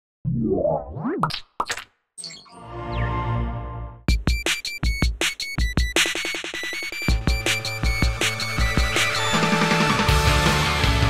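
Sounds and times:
springy cartoon boing: 0:00.3 - 0:01.8.

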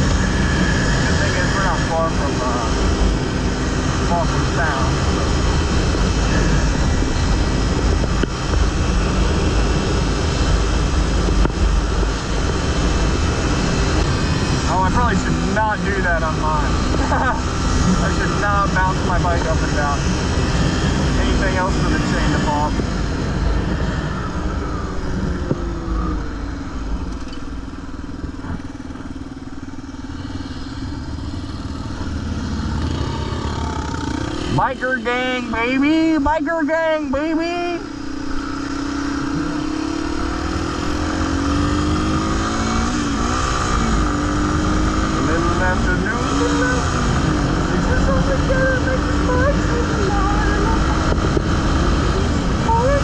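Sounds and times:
motorcycle engine running: 0:00.0 - 0:53.0
wind noise on microphone: 0:04.8 - 0:15.5, 0:16.6 - 0:29.2, 0:45.9 - 0:53.0.

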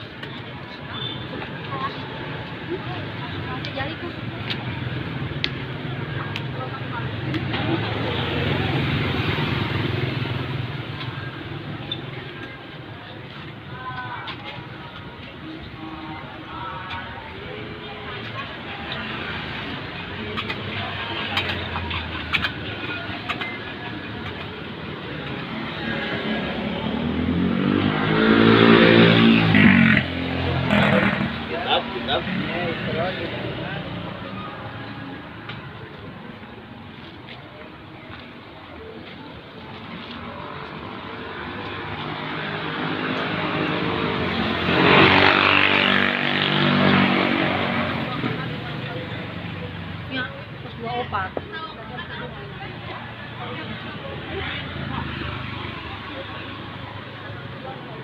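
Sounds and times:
passing vehicles: 0:00.0 - 0:58.0
vehicle engine passing: 0:25.6 - 0:34.1, 0:40.8 - 0:49.9.

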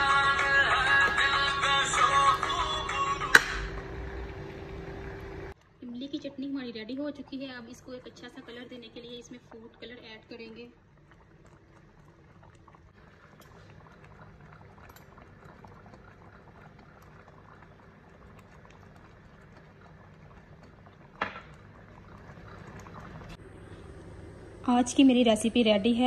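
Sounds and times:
sauce bubbling in a pot: 0:04.0 - 0:24.7.

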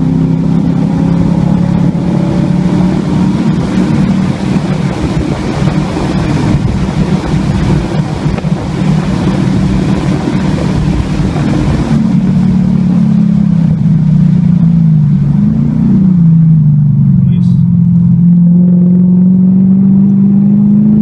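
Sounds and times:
car engine running hard: 0:00.0 - 0:21.0
wind and road hiss: 0:02.4 - 0:15.4.

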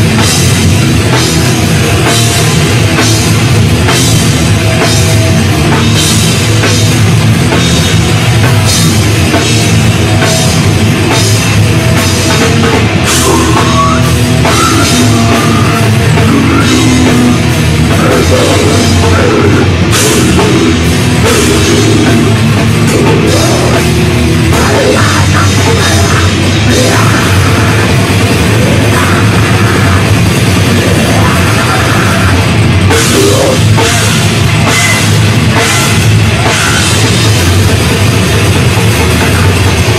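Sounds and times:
bass guitar: 0:00.0 - 0:39.9
distorted electric guitars: 0:00.0 - 0:39.9
drum kit: 0:00.0 - 0:39.9.

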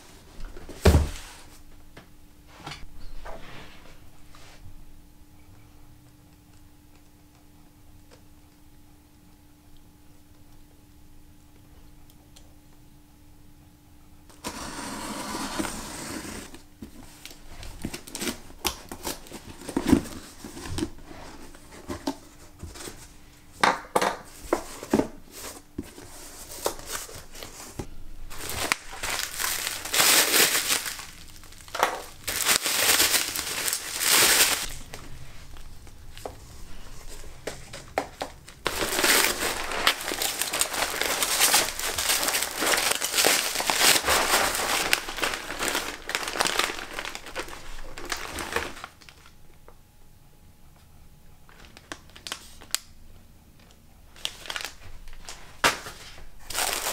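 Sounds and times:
packaging crinkling: 0:14.3 - 0:22.2, 0:24.5 - 0:49.4, 0:51.5 - 0:52.9, 0:54.1 - 0:56.9.

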